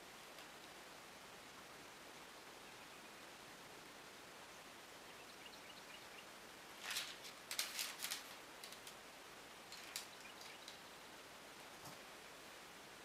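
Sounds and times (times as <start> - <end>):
faint hiss: 0.0 - 13.0
crackly rustling of parchment paper: 6.8 - 9.0, 9.6 - 10.9.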